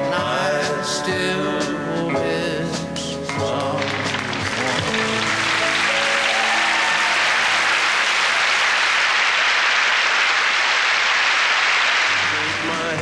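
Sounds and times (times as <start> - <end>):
audience applauding: 3.4 - 13.0.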